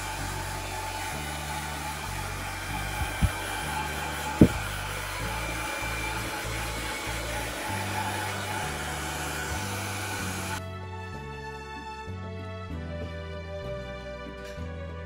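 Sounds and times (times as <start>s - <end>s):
hair dryer blowing: 0.0s - 10.6s
dull thumps: 4.4s - 4.8s.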